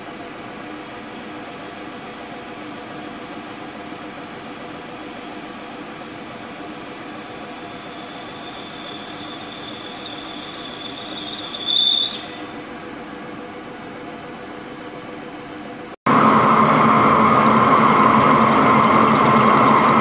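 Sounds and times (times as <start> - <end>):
high squeal from cutter: 7.6 - 12.6.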